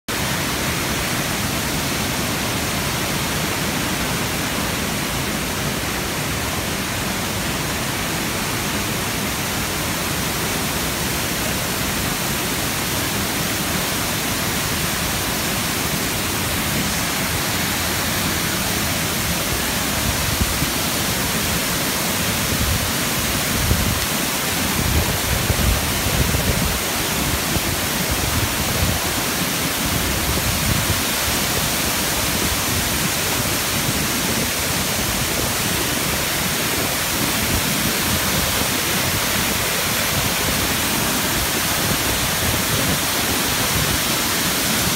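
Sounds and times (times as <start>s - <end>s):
waterfall rushing: 0.1s - 44.9s
wind buffeting microphone: 22.3s - 35.9s.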